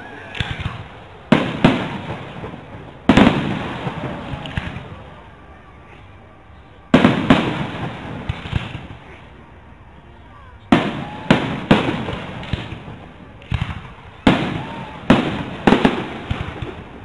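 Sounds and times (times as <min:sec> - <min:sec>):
faint firework pops: 0:00.4 - 0:05.0, 0:07.0 - 0:09.0, 0:10.7 - 0:16.8.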